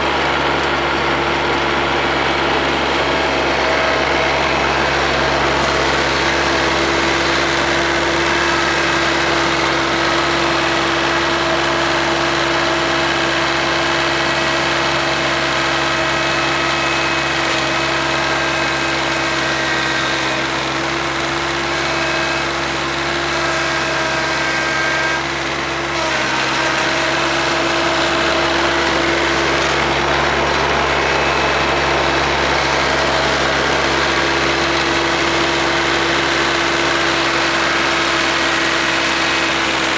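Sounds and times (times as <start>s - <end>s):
snowblower through snow: 0.0s - 39.9s
tractor diesel engine running: 0.0s - 39.9s.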